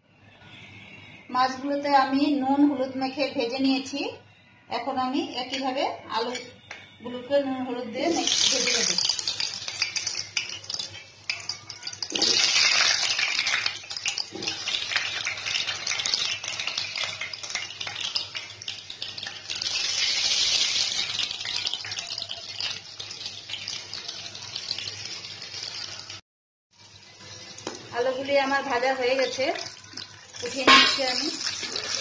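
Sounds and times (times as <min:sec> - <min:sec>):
potatoes sizzling in hot oil: 0:08.0 - 0:26.2, 0:26.8 - 0:32.0.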